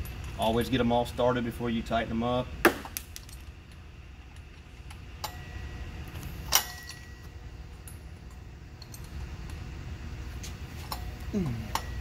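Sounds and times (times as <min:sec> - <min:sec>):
low background hum: 0:00.0 - 0:12.0
metal bolts clinking: 0:06.4 - 0:09.6.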